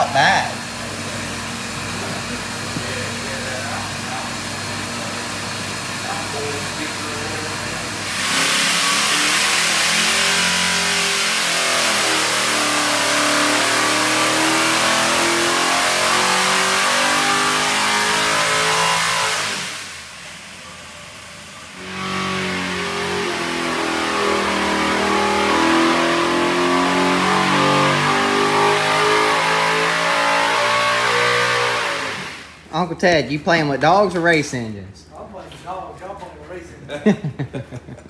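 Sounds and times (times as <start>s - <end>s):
racing engine at high revs: 5.8s - 20.0s, 21.7s - 32.6s.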